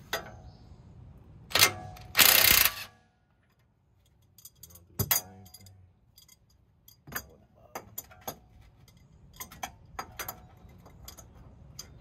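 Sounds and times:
harsh ratcheting burst: 2.1s - 2.9s.

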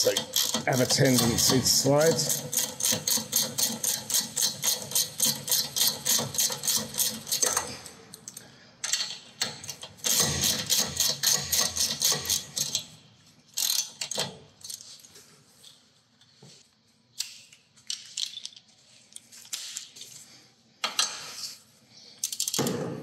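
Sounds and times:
socket ratchet clicking: 0.0s - 7.6s, 9.4s - 12.8s.

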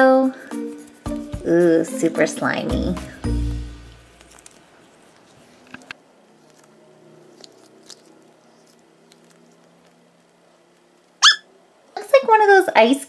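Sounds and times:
squishy ball squelching: 6.4s - 10.0s.

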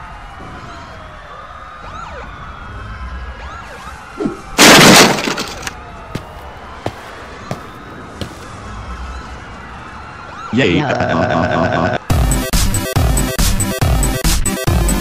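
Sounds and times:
wailing cartoon sirens: 0.0s - 4.7s, 5.4s - 15.0s
loud shattering crash: 4.6s - 5.8s.

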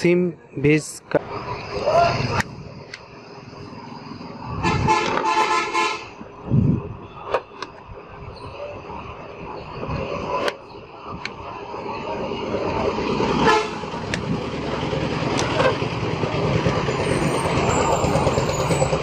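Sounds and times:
road traffic: 0.0s - 19.0s
vehicle horns: 4.6s - 6.2s, 13.3s - 14.1s.

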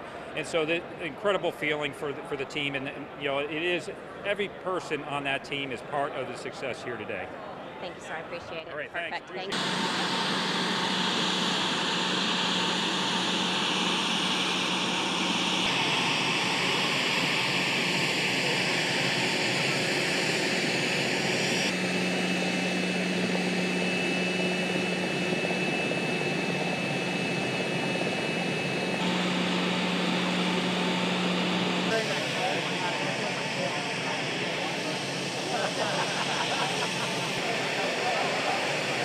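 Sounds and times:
thin high whine: 9.0s - 39.0s
jet engine rush: 9.1s - 39.0s.

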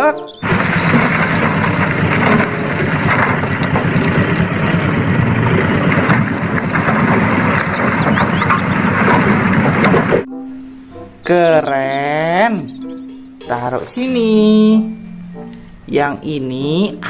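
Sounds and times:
diesel truck engine rumbling: 0.0s - 10.3s.

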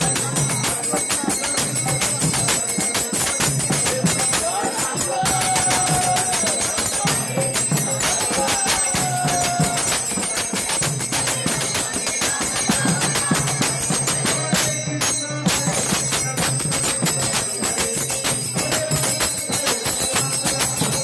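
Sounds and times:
hand cymbals clashing: 0.0s - 21.0s.

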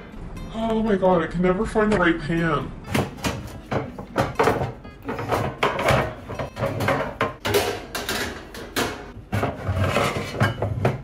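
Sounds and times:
pots and pans clattering: 2.9s - 11.0s.

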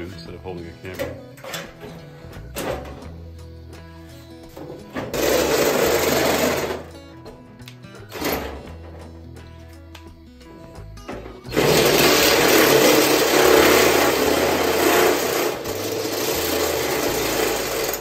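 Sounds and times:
cordless drill boring into metal: 5.1s - 6.9s, 11.5s - 18.0s.

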